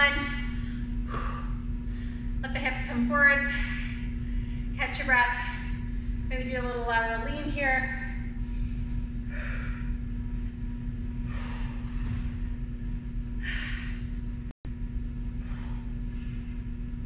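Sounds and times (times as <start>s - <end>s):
steady low hum: 0.0s - 17.0s
woman breathing heavily: 0.1s - 2.4s, 3.3s - 6.3s, 8.0s - 12.6s, 13.3s - 14.5s, 15.3s - 16.9s.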